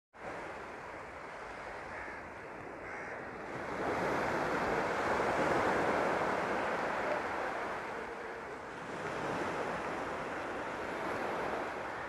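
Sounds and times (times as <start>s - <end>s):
waves washing onto sandy shore: 0.2s - 12.0s.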